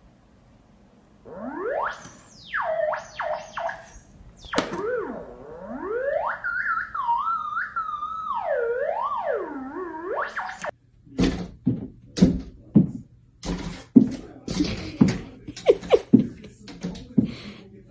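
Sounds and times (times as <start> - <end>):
sliding electronic tones: 1.3 - 10.7.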